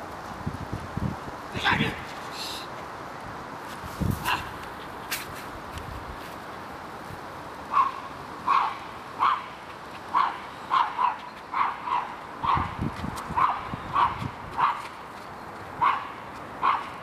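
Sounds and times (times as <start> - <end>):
dog barking: 7.7 - 9.5, 10.1 - 12.8, 13.4 - 14.9, 15.8 - 17.0.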